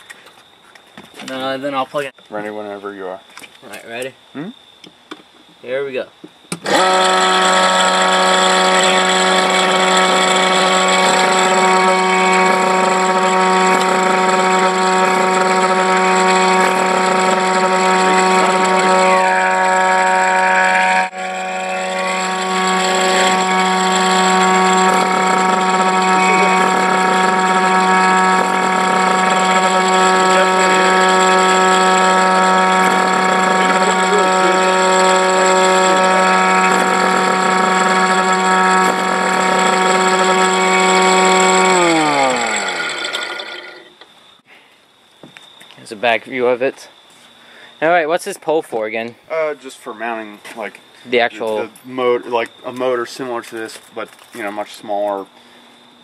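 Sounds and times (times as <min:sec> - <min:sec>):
siren steady loud tone: 0:06.6 - 0:43.7.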